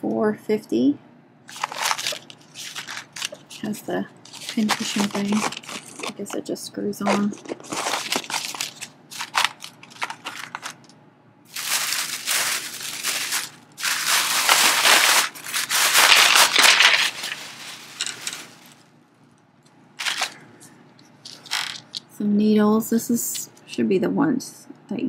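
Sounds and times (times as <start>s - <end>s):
plastic bag rustling: 1.5s - 10.9s, 11.5s - 18.9s, 20.0s - 20.4s, 21.2s - 22.0s.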